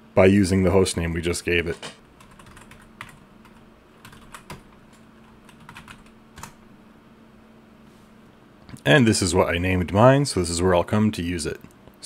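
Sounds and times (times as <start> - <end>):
computer keyboard keys clicking: 2.2 - 6.6.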